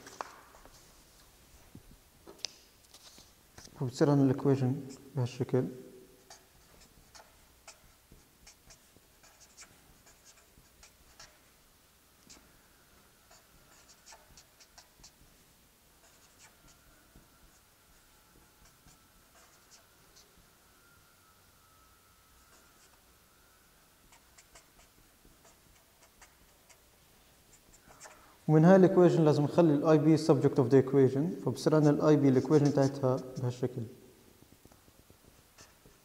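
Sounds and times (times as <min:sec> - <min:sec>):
marker pen writing on paper: 0:06.2 - 0:11.5, 0:12.2 - 0:20.5, 0:22.4 - 0:23.1, 0:24.0 - 0:28.4, 0:31.8 - 0:33.6, 0:34.8 - 0:36.0.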